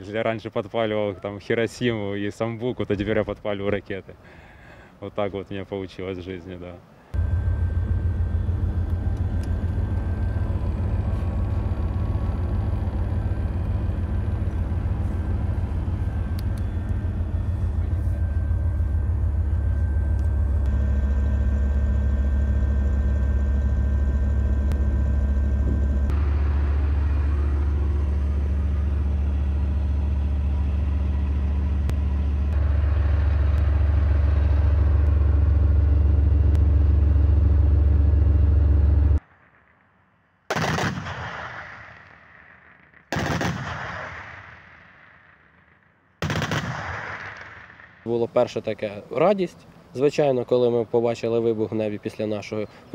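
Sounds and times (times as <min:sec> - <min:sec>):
faint steady whine: 0:00.0 - 0:40.5
diesel engine rumbling: 0:06.8 - 0:39.3.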